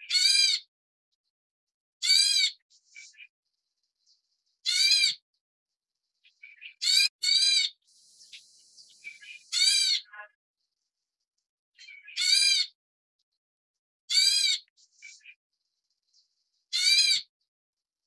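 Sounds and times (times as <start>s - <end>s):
bird harsh rasping calls: 0.0s - 0.7s, 2.0s - 5.3s, 6.1s - 10.8s, 11.8s - 12.8s, 14.1s - 17.3s.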